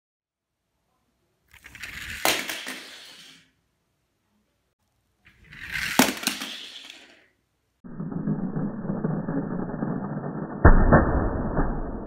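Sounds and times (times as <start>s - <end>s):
toy car clacking on wooden floor: 1.5s - 3.4s, 5.3s - 7.3s
toy car rattling down a ramp: 1.5s - 3.5s, 5.3s - 7.3s.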